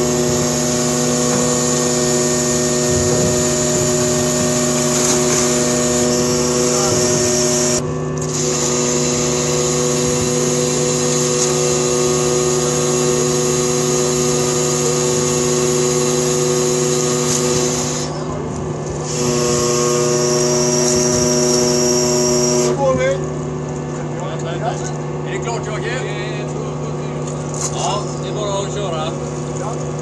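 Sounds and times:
ship machinery droning: 0:00.0 - 0:30.0.

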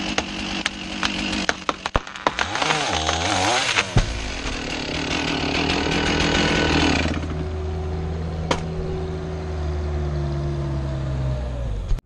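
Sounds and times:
chainsaw cutting and idling: 0:00.0 - 0:07.8.

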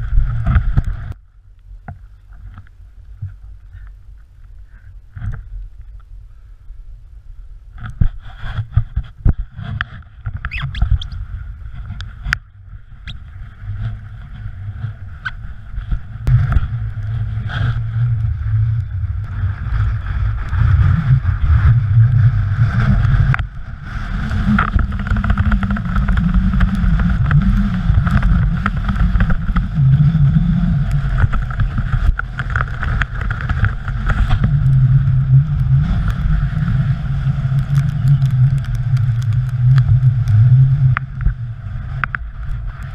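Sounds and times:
knocks and scrapes: 0:00.0 - 0:01.2, 0:07.8 - 0:18.2
wind buffeting microphone: 0:02.1 - 0:42.9.

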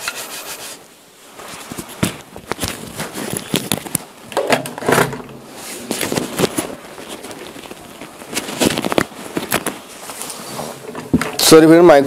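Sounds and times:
microphone handling noise: 0:01.3 - 0:11.5.

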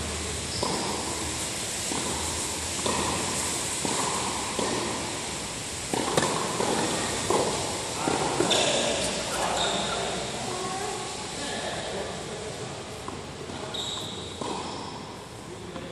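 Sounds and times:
tennis ball hit by racquets: 0:00.5 - 0:09.4, 0:13.0 - 0:15.9.

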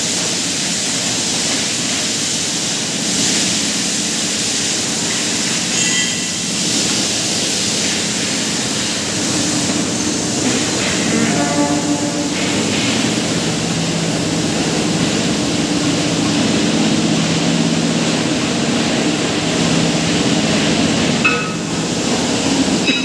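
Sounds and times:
crane mechanical hum: 0:03.1 - 0:23.0
short high-pitched tone: 0:10.8 - 0:12.7.

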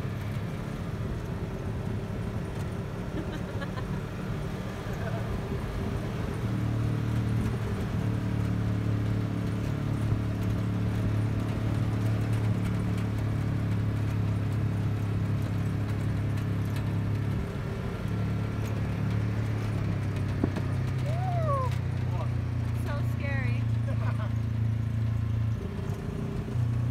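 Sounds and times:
vehicle engine running: 0:00.0 - 0:26.9.

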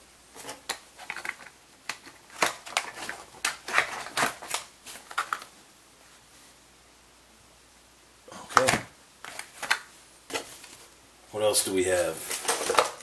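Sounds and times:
packaging crinkling and crackling: 0:00.4 - 0:05.5, 0:08.5 - 0:10.9, 0:12.2 - 0:13.0.

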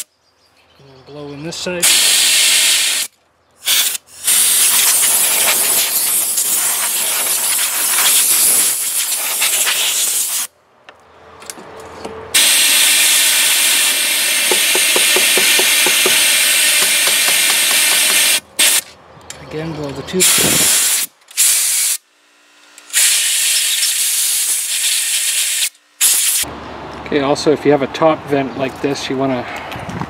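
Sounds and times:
compressed air blow gun hissing: 0:01.8 - 0:10.5, 0:12.3 - 0:18.9, 0:20.2 - 0:22.0, 0:22.9 - 0:26.5.

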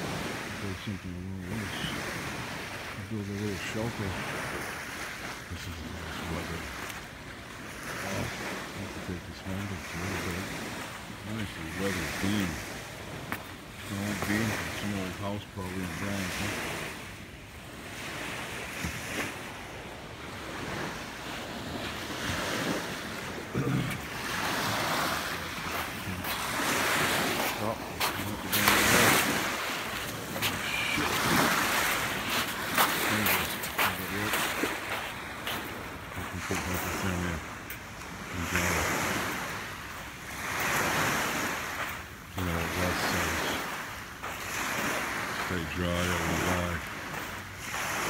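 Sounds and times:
waves washing on beach: 0:00.0 - 0:48.0.

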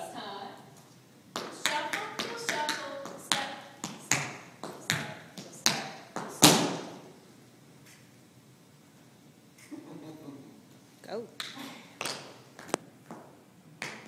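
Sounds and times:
tap shoes striking floor: 0:01.3 - 0:06.9
loud foot stamp: 0:03.8 - 0:07.0.

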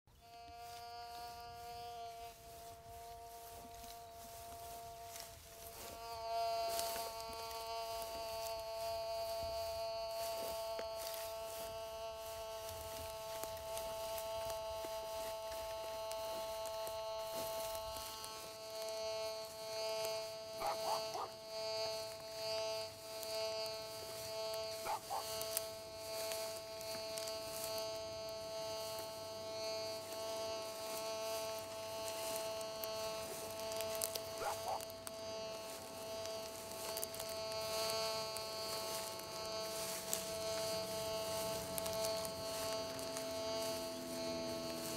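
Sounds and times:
metal detector buzzing tone: 0:00.1 - 0:44.9
metal detector blips: 0:30.7 - 0:44.9.

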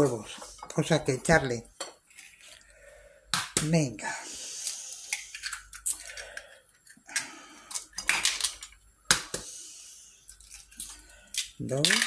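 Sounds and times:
eggs cracking against glass bowl: 0:03.3 - 0:03.8, 0:05.0 - 0:06.5, 0:10.3 - 0:12.0.

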